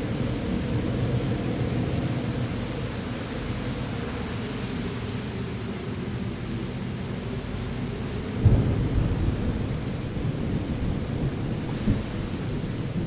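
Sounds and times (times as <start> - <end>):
rain hiss: 0.0 - 13.0
low storm rumble: 8.0 - 13.0.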